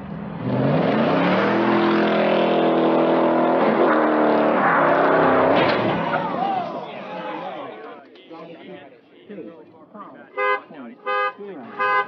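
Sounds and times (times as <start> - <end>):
car engine revving hard: 0.0 - 6.1.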